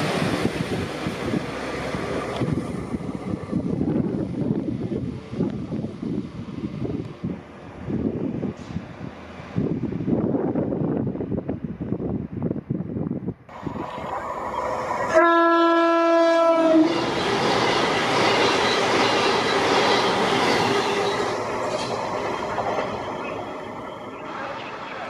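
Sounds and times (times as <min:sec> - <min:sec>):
train rushing past: 0:00.0 - 0:11.2, 0:13.5 - 0:25.0
train horn: 0:15.0 - 0:17.2.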